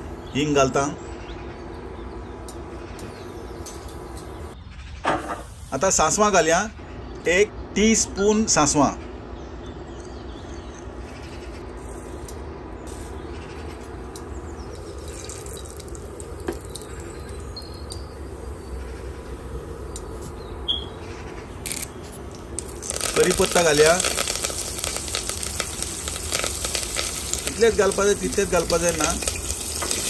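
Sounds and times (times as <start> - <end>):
steady low hum: 0.0 - 29.9
seeds sizzling in hot oil: 12.9 - 19.2, 21.6 - 30.0.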